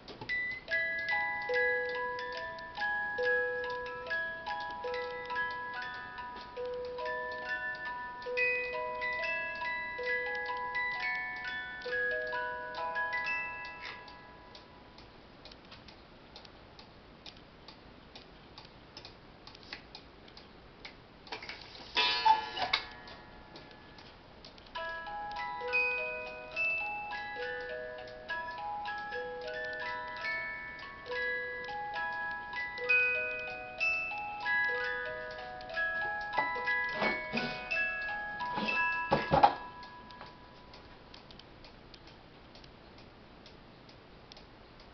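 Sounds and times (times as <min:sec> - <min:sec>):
music box playing a tune: 0:00.3 - 0:15.0, 0:24.8 - 0:40.9
clock ticking: 0:00.3 - 0:21.4, 0:22.7 - 0:44.9.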